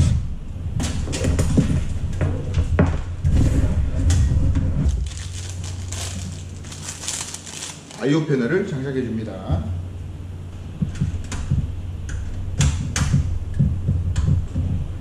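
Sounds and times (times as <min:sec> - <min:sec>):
low hum: 0:00.0 - 0:15.0
plastic crinkling: 0:04.8 - 0:08.3.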